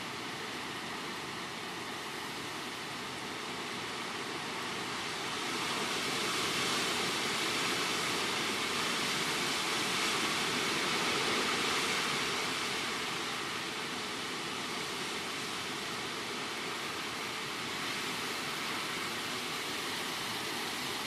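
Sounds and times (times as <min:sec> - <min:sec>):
wind rushing through tree leaves: 0:00.0 - 0:21.0.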